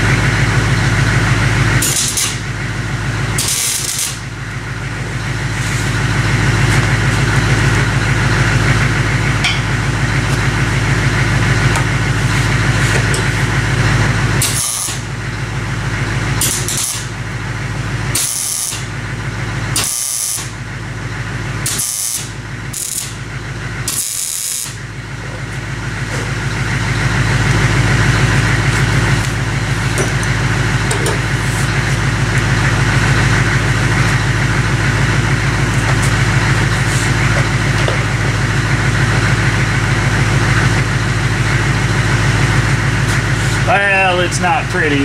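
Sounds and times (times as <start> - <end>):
machine drone with low hum: 0.0 - 45.0
welding crackle: 1.8 - 2.4, 3.4 - 4.2, 14.4 - 15.1, 16.4 - 17.1, 18.2 - 18.9, 19.8 - 20.5, 21.7 - 23.2, 23.9 - 24.8.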